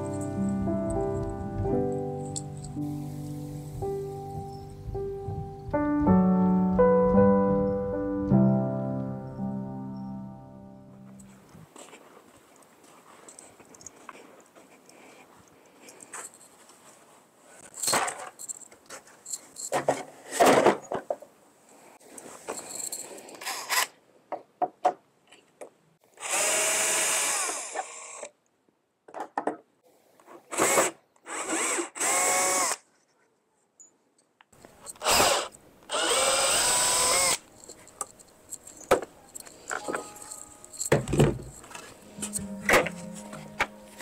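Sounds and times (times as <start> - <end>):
cordless drill whirring: 26.2 - 28.3, 30.6 - 32.8, 34.9 - 37.4.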